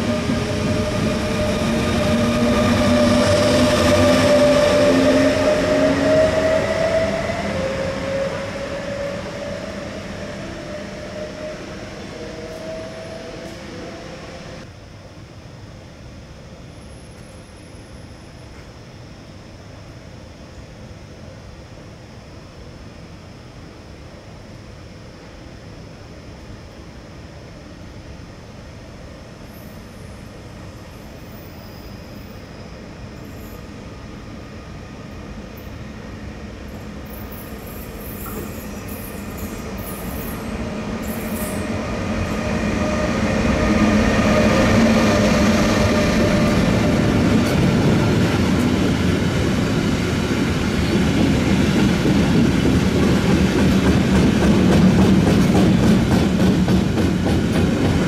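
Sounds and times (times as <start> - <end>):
electric locomotive passing: 0.0 - 14.7, 25.2 - 58.0
train wheels rumbling on rails: 0.0 - 14.7, 33.0 - 58.0.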